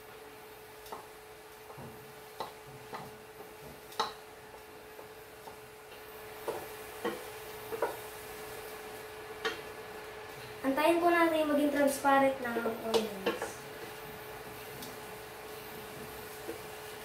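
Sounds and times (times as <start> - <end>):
faint steady hum: 0.0 - 17.0
spatula tapping on a pot: 2.4 - 4.2, 5.0 - 8.0, 9.4 - 9.6, 12.9 - 13.5.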